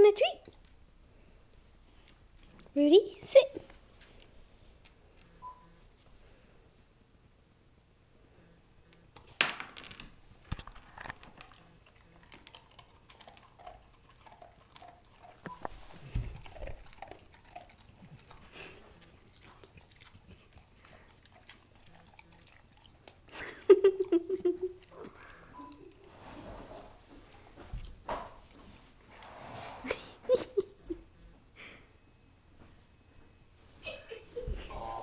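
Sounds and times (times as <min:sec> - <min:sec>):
dog crunching a treat: 0:10.4 - 0:15.5, 0:16.2 - 0:23.4.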